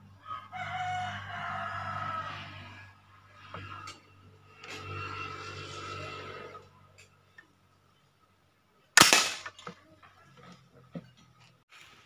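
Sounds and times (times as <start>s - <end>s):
toy gun shot: 9.0s - 9.6s.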